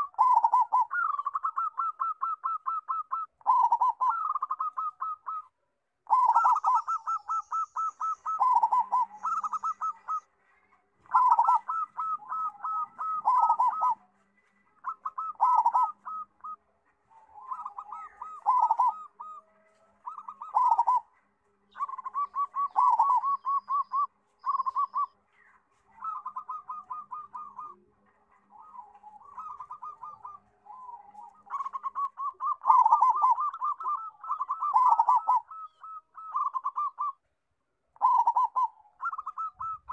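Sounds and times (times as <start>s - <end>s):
dove cooing: 0.0s - 10.4s, 11.0s - 37.2s, 38.0s - 39.9s.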